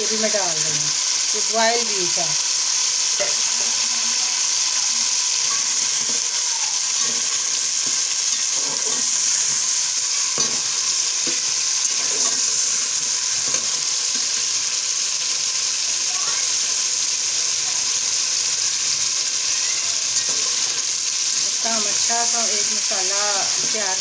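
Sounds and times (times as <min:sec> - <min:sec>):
food sizzling in oil: 0:00.0 - 0:24.0.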